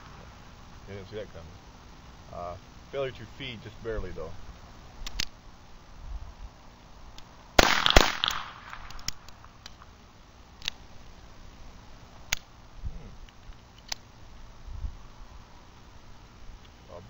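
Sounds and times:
sharp clicks: 5.0s - 5.4s, 7.1s - 9.9s, 10.6s - 10.8s, 12.3s - 12.5s, 13.2s - 14.1s
pistol shots: 7.6s - 9.3s.

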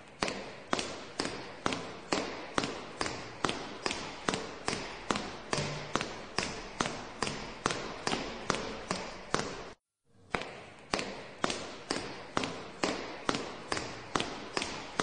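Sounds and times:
sharp rhythmic taps with hiss: 0.0s - 15.0s.

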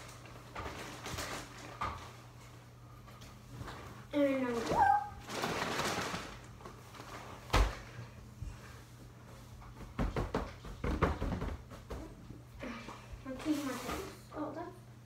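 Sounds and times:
paper bedding rustling: 0.0s - 2.3s, 3.6s - 7.9s.

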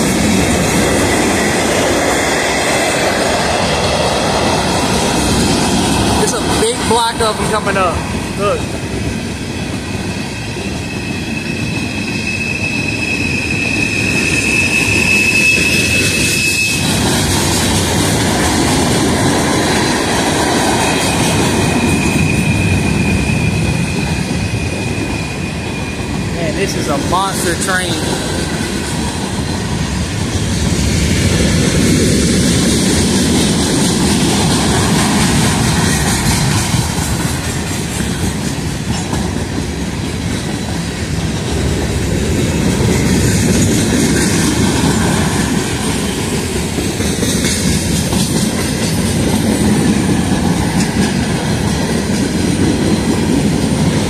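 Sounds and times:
freight train rumbling past: 0.0s - 54.0s
wheels clacking over rail joints: 26.7s - 54.0s.

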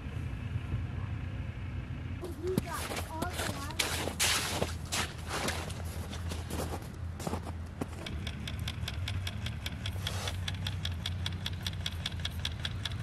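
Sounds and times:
snowmobile engine idling: 0.3s - 13.0s
fishing reel clicking: 8.2s - 13.0s.

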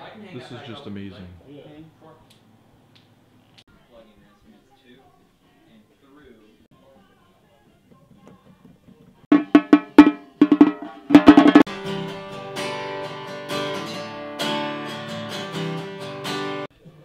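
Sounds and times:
hand drum hit with beater: 9.3s - 11.7s
acoustic guitar strumming chords: 9.3s - 16.7s.

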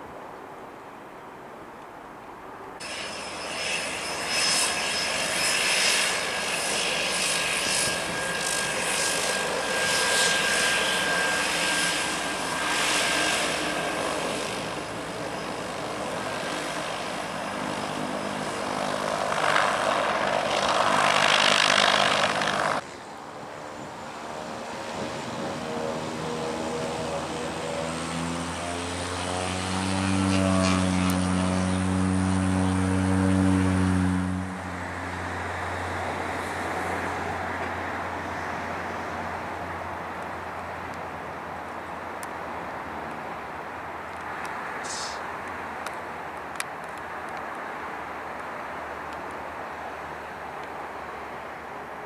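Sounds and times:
turboprop engine droning: 2.8s - 42.3s
rushing aircraft engine whine: 2.8s - 52.0s.

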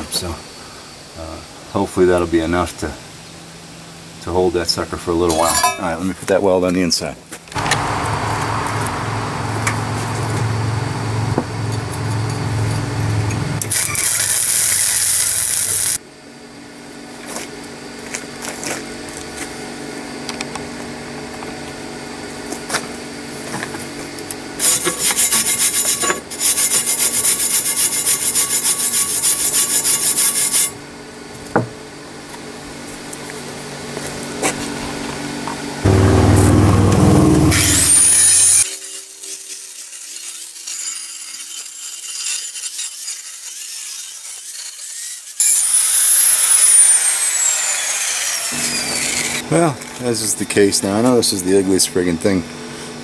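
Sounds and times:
rasping on steel: 24.6s - 30.8s, 35.9s - 45.4s
faint hum: 35.8s - 38.5s.

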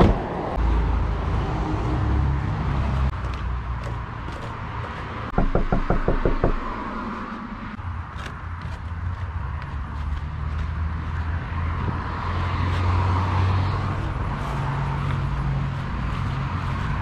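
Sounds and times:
low rumble of wind or traffic: 0.0s - 17.0s
knocking on front door: 5.3s - 6.9s.

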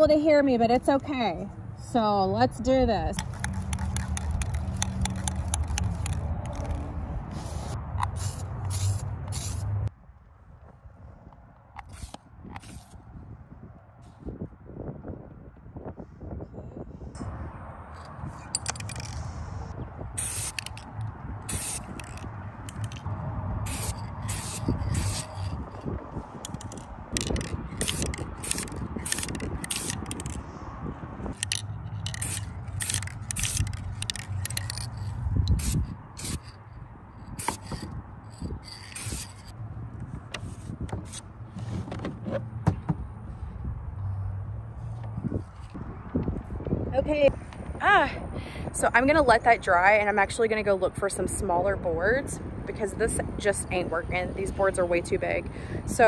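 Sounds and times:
spray paint can hissing: 3.2s - 9.8s, 11.9s - 13.0s, 20.2s - 23.0s, 23.7s - 25.8s, 26.4s - 30.4s, 31.3s - 36.6s, 37.2s - 39.5s.

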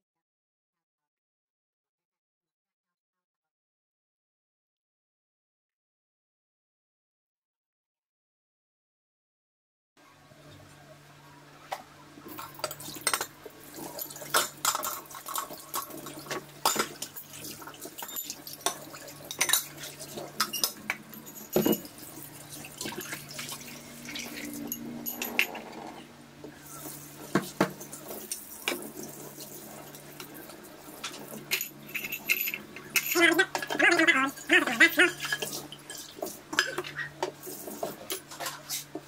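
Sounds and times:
tap water running and splashing: 12.3s - 24.7s, 26.5s - 31.6s, 33.6s - 39.0s
dishes clinking in steel sink: 12.3s - 26.0s, 26.7s - 38.8s.

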